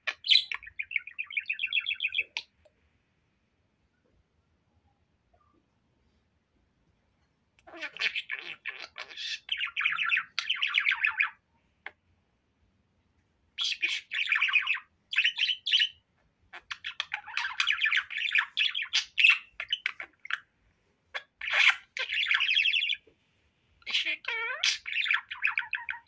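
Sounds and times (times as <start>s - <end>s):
budgerigar warbling and chattering: 0.1s - 2.5s, 7.6s - 11.4s, 13.6s - 20.5s, 21.1s - 23.0s, 23.8s - 26.0s.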